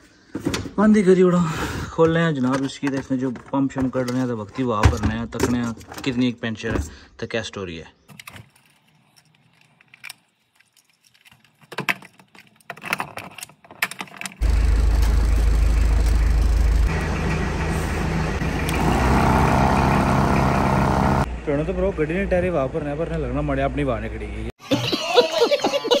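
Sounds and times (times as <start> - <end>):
handling clicks and knocks: 2.0 - 6.9, 8.1 - 14.4
air compressor humming: 14.4 - 21.3.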